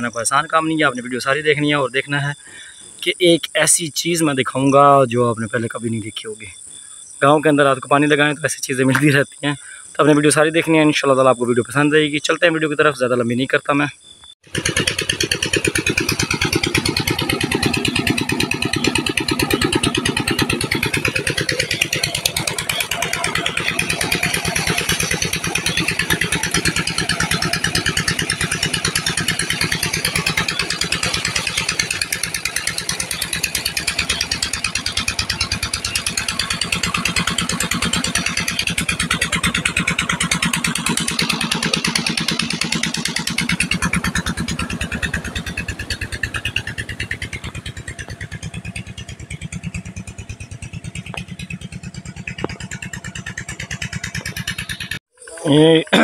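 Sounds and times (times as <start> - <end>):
pump engine running: 14.4 - 56.0.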